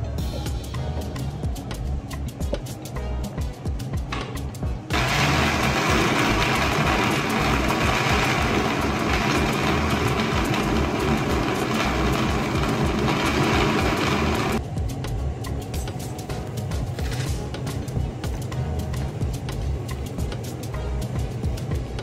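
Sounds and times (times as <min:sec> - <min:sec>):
electric blender running: 0:04.9 - 0:14.6.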